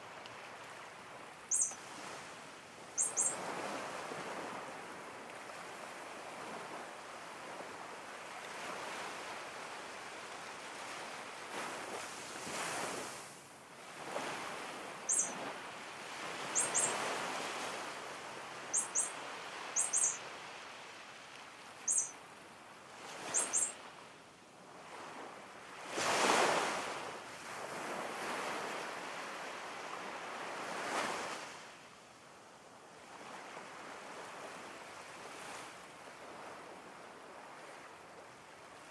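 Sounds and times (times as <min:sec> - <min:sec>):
short high chirps: 0:01.5 - 0:01.8, 0:03.0 - 0:03.4, 0:15.1 - 0:15.3, 0:16.6 - 0:16.9, 0:18.7 - 0:19.1, 0:19.8 - 0:20.2, 0:21.9 - 0:22.1, 0:23.3 - 0:23.7
ocean waves washing: 0:10.8 - 0:23.8.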